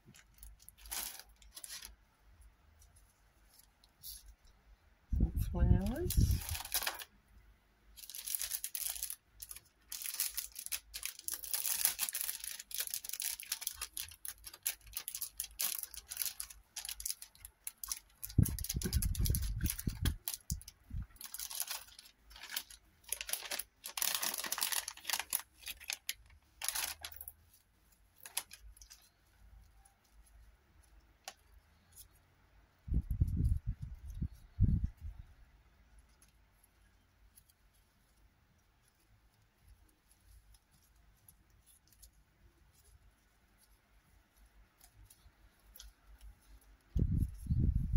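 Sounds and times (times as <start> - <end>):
plastic packet crinkling: 0.0 - 2.0, 5.9 - 7.1, 8.0 - 27.4, 28.2 - 29.2.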